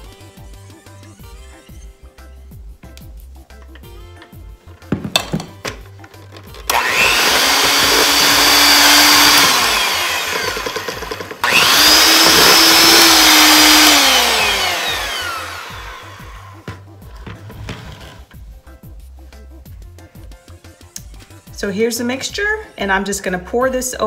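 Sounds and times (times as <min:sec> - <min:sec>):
electric hand mixer whining: 0:06.5 - 0:16.7.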